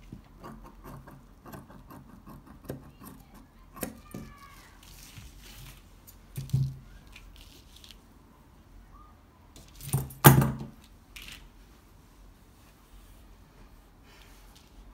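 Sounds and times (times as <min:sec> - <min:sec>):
faint fabric handling: 0:04.3 - 0:09.9, 0:10.8 - 0:14.9.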